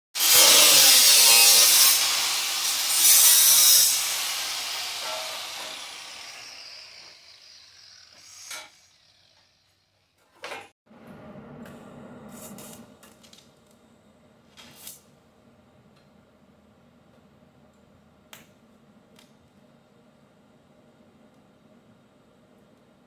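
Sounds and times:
angle grinder on sheet steel: 0.2s - 10.2s.

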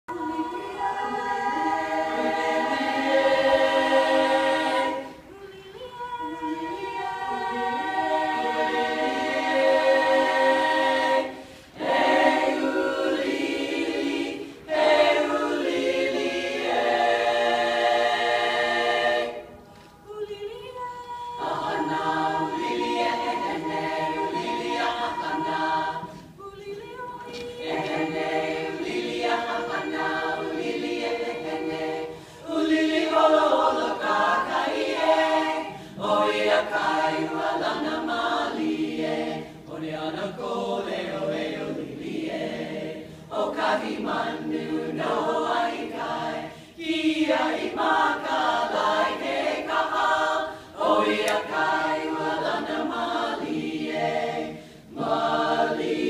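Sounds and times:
women's choir singing: 0.0s - 56.0s.

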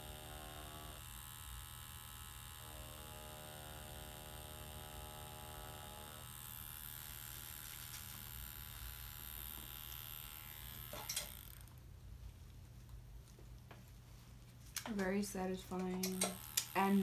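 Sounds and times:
tattoo machine buzzing: 0.0s - 11.7s, 15.6s - 17.0s.

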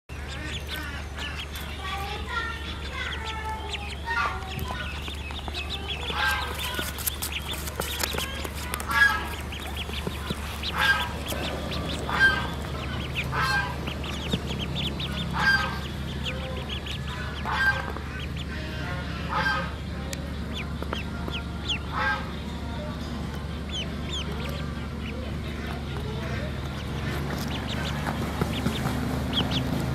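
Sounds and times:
duck calling: 0.1s - 19.9s, 20.5s - 22.4s
ducklings chirping peeps: 0.1s - 29.9s
steady low hum: 0.1s - 29.9s.

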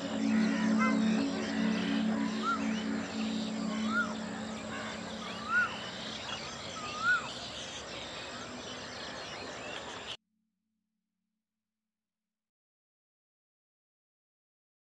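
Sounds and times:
bird repeating rising-falling call: 0.0s - 7.4s
wild birds chirping: 0.0s - 10.2s.

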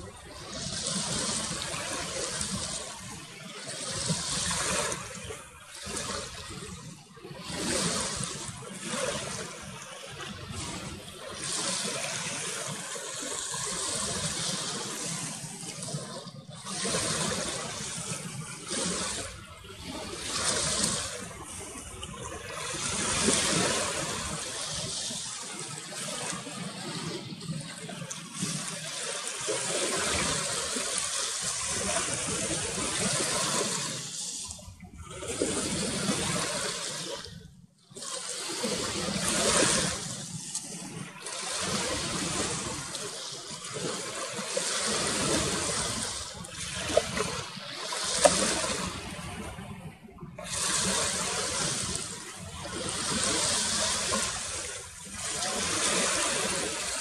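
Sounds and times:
small waves lapping: 0.0s - 57.0s.

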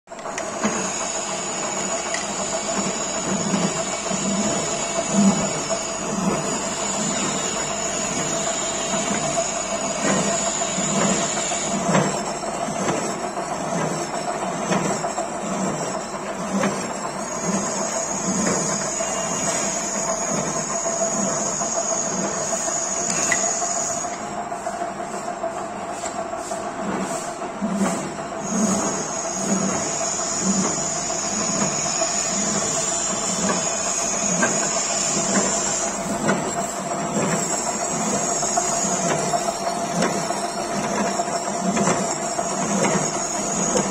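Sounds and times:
milling machine cutting steel: 29.0s - 41.0s.

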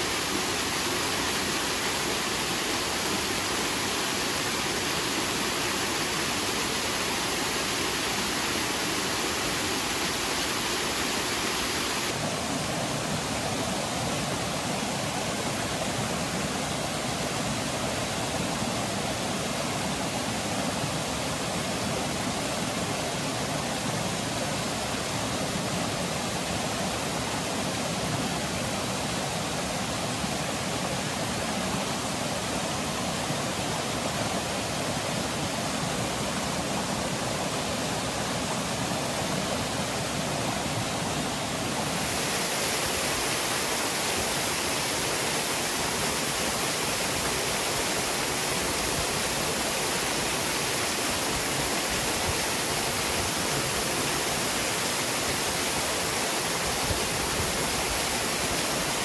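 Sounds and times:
waterfall splashing into pool: 0.0s - 14.2s, 40.4s - 59.0s.

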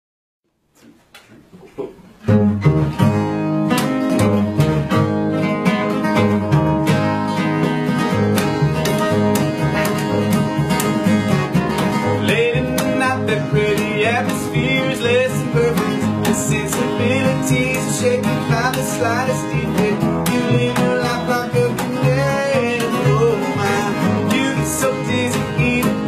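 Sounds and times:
acoustic guitars: 0.8s - 26.0s
plucked double bass: 1.8s - 26.0s
person singing: 11.9s - 26.0s.

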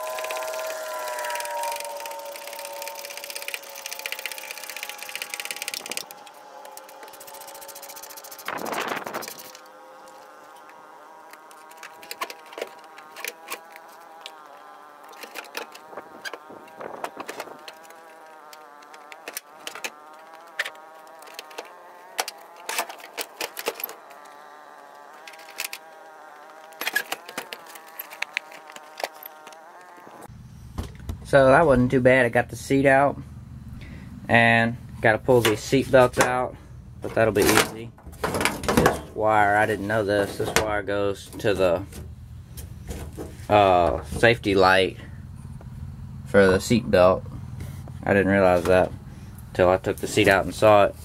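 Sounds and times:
insect buzzing: 0.0s - 30.5s.

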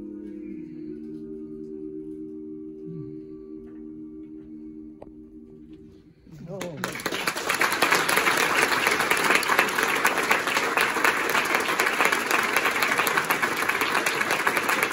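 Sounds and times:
audience applauding: 6.5s - 14.9s.

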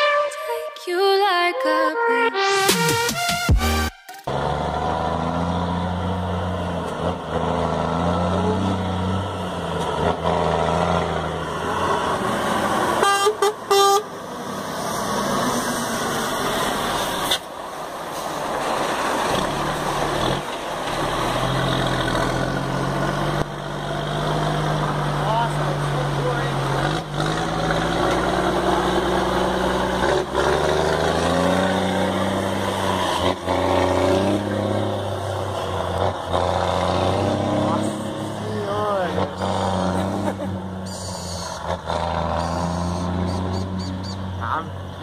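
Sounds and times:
truck horn toots: 0.0s - 0.8s, 13.0s - 14.1s, 40.8s - 41.6s, 42.2s - 44.3s
diesel truck engine rumbling: 4.3s - 45.0s.

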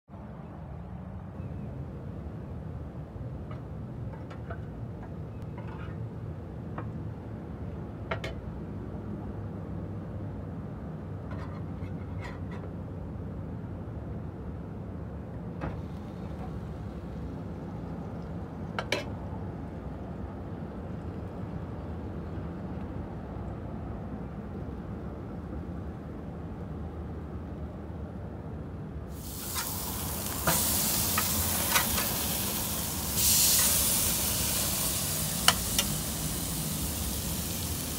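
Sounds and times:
low grill hum: 0.8s - 37.9s
meat sizzling on grill: 29.1s - 37.9s.

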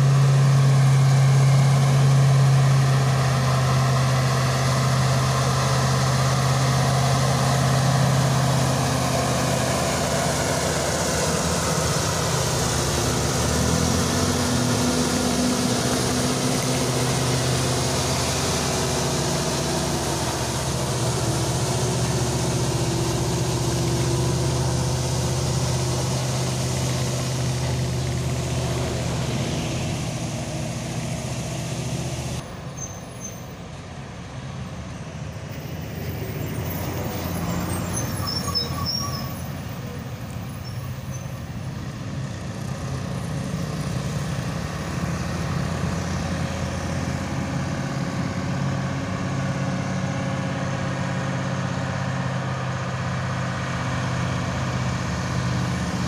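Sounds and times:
diesel truck engine pulling uphill: 0.0s - 56.0s.

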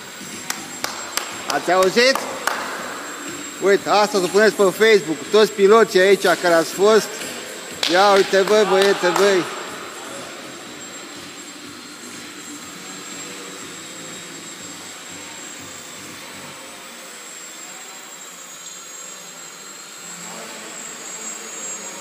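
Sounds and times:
rc planes whirring buzz: 0.0s - 22.0s.

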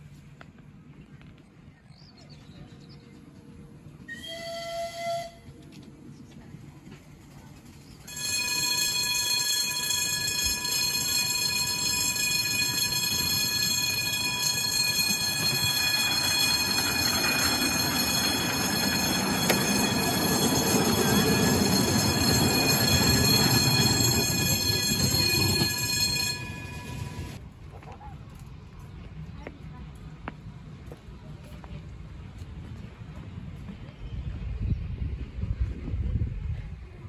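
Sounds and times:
miniature train rumbling: 3.2s - 37.0s
miniature locomotive whistle: 4.1s - 5.6s, 8.0s - 27.4s
level crossing warning alarm: 8.1s - 27.4s.

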